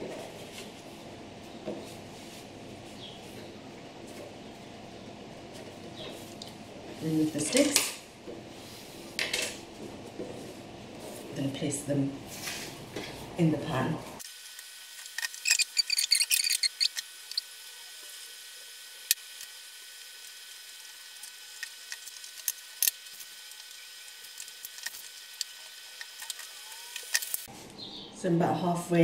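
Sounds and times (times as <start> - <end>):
pastry sheets rustling: 0.0 - 4.5, 9.7 - 11.6.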